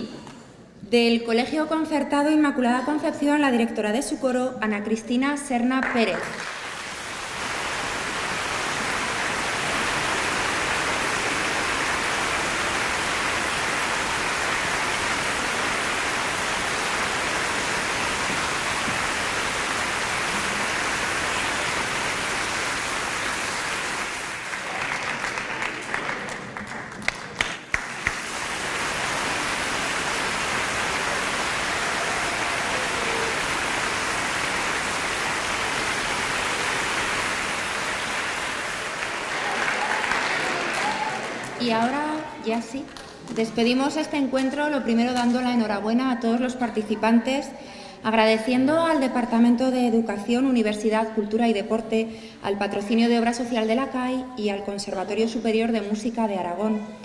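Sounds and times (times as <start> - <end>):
children applauding: 6.0 - 42.0.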